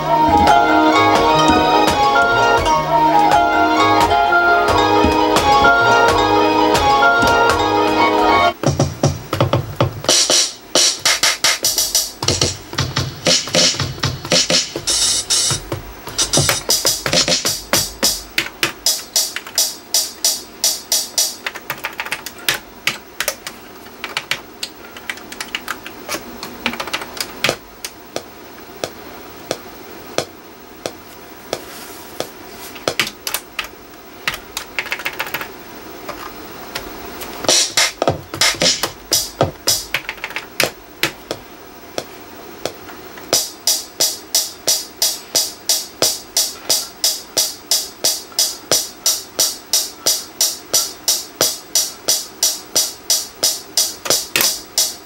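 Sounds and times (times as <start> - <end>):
drum machine hits: 0.0 - 23.5, 32.8 - 33.4, 36.8 - 41.4, 42.6 - 55.0
fingers tapping drum pads: 0.0 - 29.6, 30.2 - 33.7, 36.1 - 41.4, 42.0 - 55.0.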